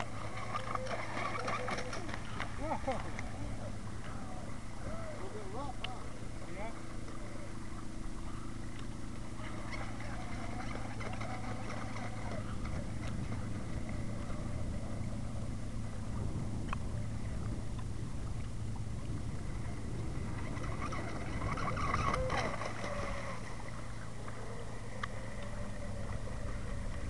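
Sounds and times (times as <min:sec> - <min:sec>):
model boat motor drone: 0:00.0 - 0:27.0
wind noise: 0:09.4 - 0:23.5.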